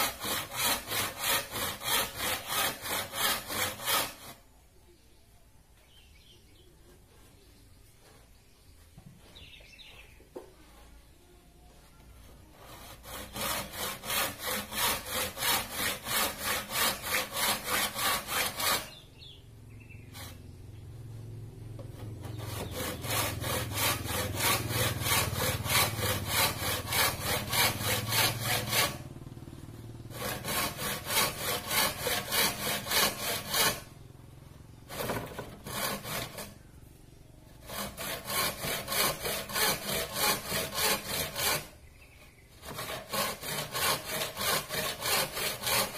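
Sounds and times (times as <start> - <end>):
hand saw cutting bamboo: 0.0 - 4.4, 12.4 - 19.0, 20.1 - 20.4, 21.8 - 29.1, 30.1 - 34.0, 34.8 - 36.6, 37.6 - 41.8, 42.6 - 45.9.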